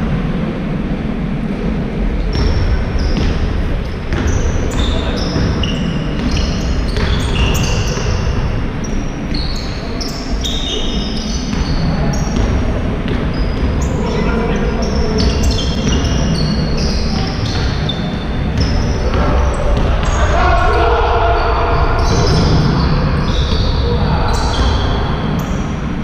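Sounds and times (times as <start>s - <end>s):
sneakers squeaking on floor: 2.2s - 26.0s
basketball bouncing: 2.3s - 8.6s, 11.5s - 13.9s, 15.1s - 20.3s
players calling out: 4.2s - 26.0s.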